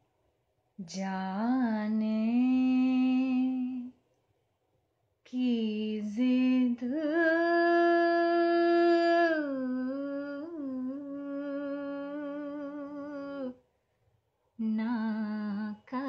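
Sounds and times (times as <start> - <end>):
woman singing unaccompanied: 0.8 - 4.0, 5.3 - 13.6, 14.6 - 16.0.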